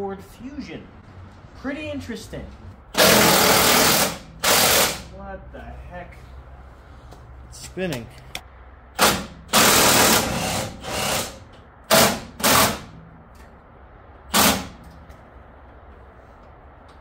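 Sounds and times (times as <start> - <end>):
impact wrench bursts: 2.9 - 5.1, 8.9 - 13.0, 14.3 - 15.0.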